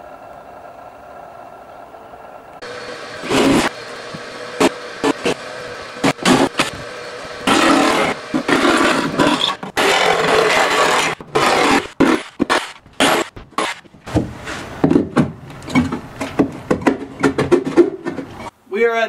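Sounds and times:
power saw cutting wood: 0:02.6 - 0:14.7
knocks and scrapes of metal box: 0:07.5 - 0:18.5.

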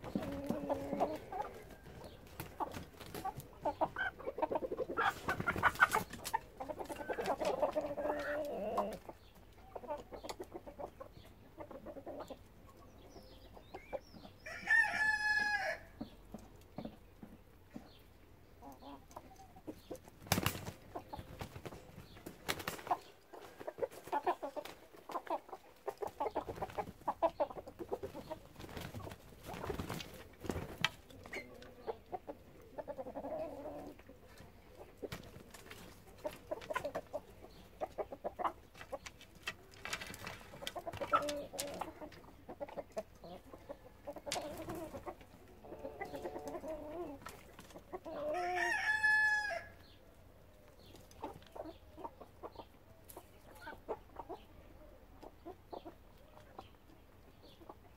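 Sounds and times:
chickens clucking: 0:00.0 - 0:57.9
rooster crowing: 0:14.4 - 0:15.9, 0:48.3 - 0:49.8.

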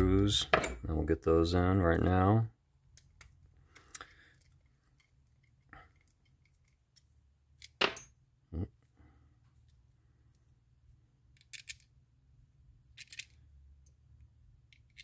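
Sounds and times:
small metal parts clinking: 0:11.3 - 0:11.9, 0:12.9 - 0:14.0, 0:14.6 - 0:15.0.

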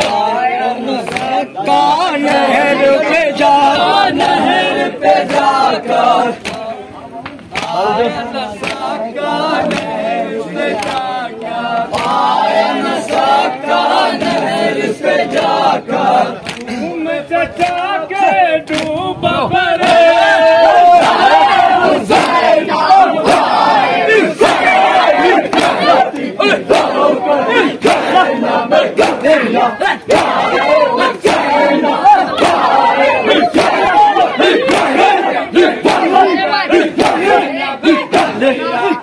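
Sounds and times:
men chanting together: 0:00.0 - 0:39.0
hands slapping chests: 0:01.0 - 0:01.4, 0:07.2 - 0:07.8, 0:16.4 - 0:16.8, 0:34.6 - 0:35.0.

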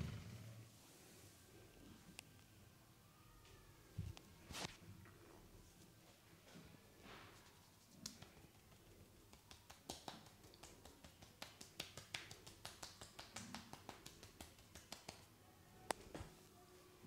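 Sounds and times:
soft brushing on skin: 0:07.0 - 0:15.0.

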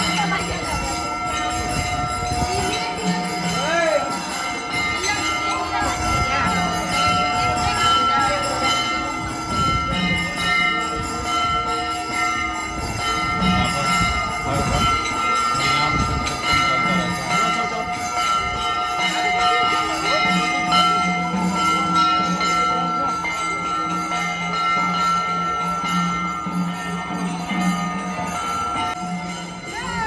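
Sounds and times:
jingling: 0:00.0 - 0:30.0
people chattering: 0:00.0 - 0:30.0
steady ringing tones: 0:00.0 - 0:30.0.

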